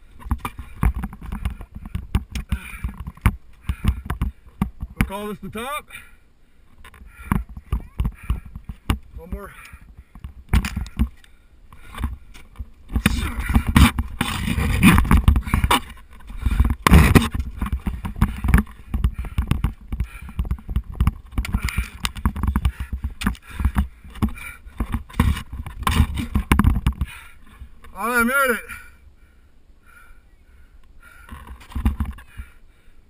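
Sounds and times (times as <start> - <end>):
ice tools scraping and knocking: 11.8 - 27.1.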